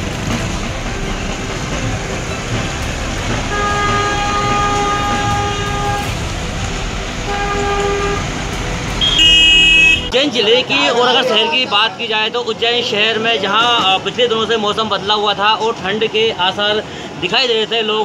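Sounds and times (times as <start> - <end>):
traffic on a wet street: 0.0 - 18.0
vehicle horns honking: 2.7 - 6.4, 7.1 - 10.2.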